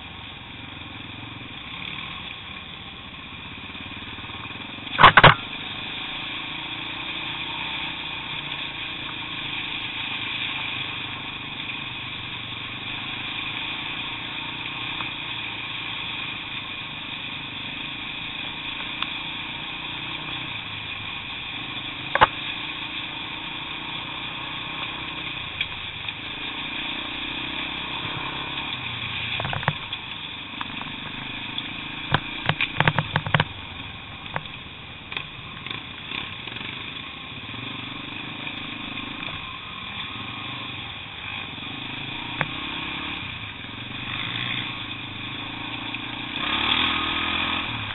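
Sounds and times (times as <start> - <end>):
motorcycle engine running: 0.0 - 47.9
motorcycle knocking over stones: 4.9 - 5.7, 22.0 - 22.6, 28.1 - 33.7.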